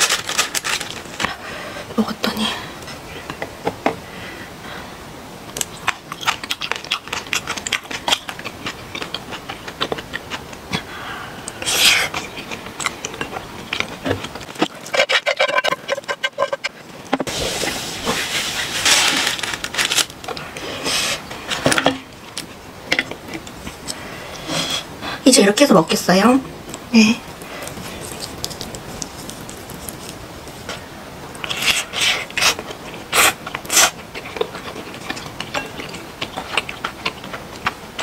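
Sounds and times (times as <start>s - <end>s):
rustling: 0.0s - 1.7s, 12.1s - 22.6s, 26.6s - 37.8s.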